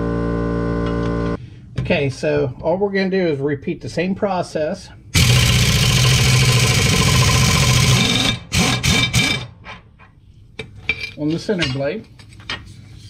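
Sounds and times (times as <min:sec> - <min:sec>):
pneumatic impact wrench: 0:05.2 - 0:09.8.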